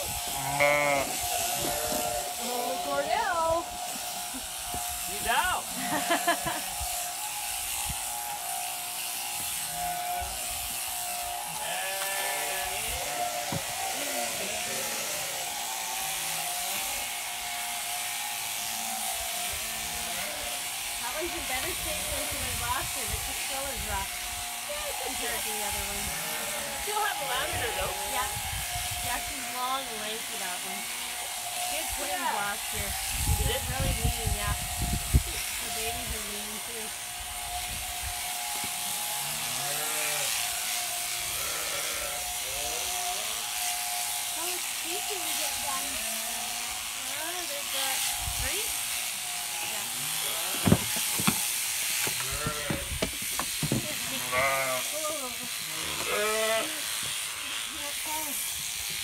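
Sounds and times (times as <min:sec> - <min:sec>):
electric shears buzzing: 0:00.0 - 0:59.0
sheep bleating: 0:00.2 - 0:04.4, 0:05.6 - 0:07.0, 0:09.0 - 0:10.4, 0:11.0 - 0:17.7, 0:18.7 - 0:20.7, 0:24.8 - 0:28.4, 0:29.1 - 0:32.8, 0:38.3 - 0:44.1, 0:52.2 - 0:53.0, 0:53.9 - 0:57.7.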